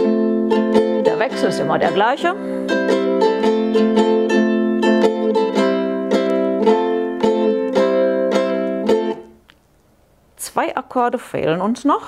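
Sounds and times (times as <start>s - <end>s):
ukulele strumming chords: 0.0s - 9.6s.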